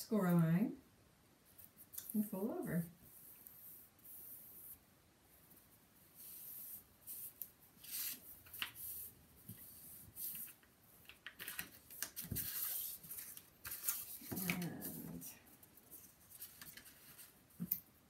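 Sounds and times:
paper rustling and rubbing: 0:05.7 - 0:17.8.

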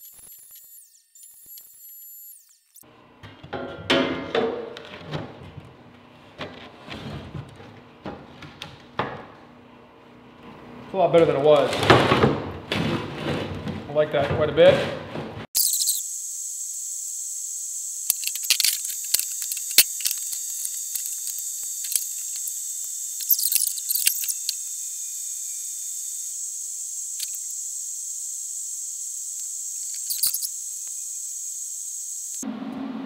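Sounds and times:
arc welding crackling: 0:00.0 - 0:02.8, 0:15.6 - 0:32.4.

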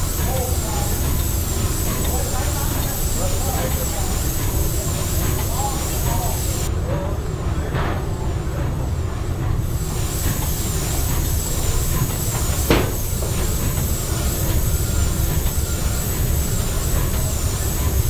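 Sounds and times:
steam engine rumble: 0:00.0 - 0:18.0
sharp knock: 0:12.7 - 0:13.1.

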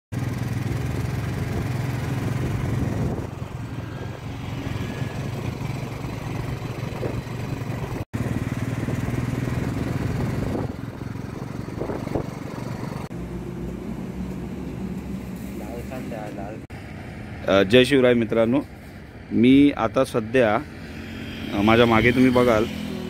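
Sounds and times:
motorcycle engine running: 0:00.1 - 0:15.3, 0:20.6 - 0:23.0
wind and road noise: 0:00.1 - 0:23.0.

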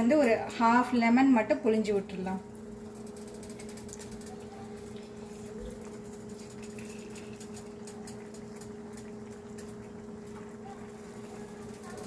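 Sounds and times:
liquid boiling in a pot: 0:00.0 - 0:12.0.

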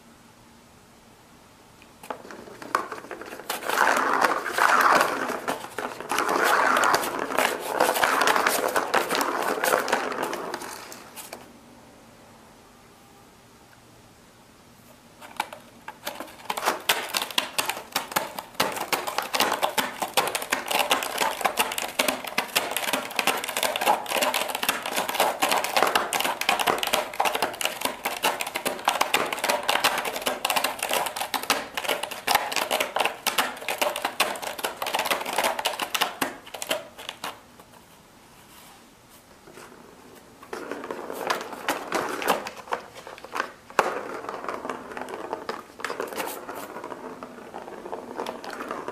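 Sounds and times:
cat claws scratching cardboard: 0:02.0 - 0:11.4, 0:15.2 - 0:37.4.

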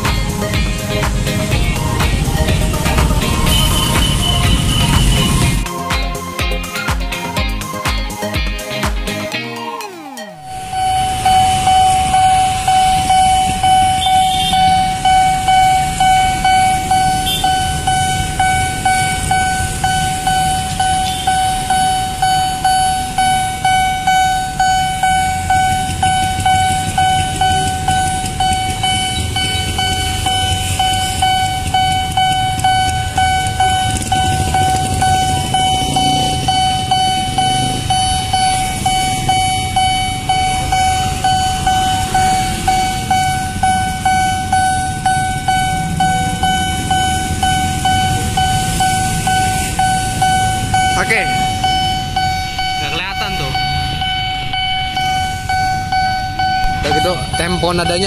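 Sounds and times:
level crossing warning bell: 0:00.0 - 0:06.6, 0:09.8 - 0:58.0
low rumble: 0:32.2 - 0:57.6.

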